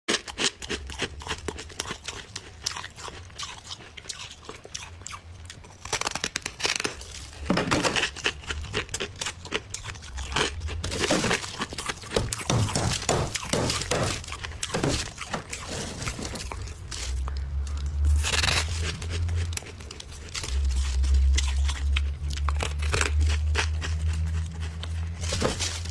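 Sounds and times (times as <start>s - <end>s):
frost being scraped and crunched: 10.4s - 17.3s.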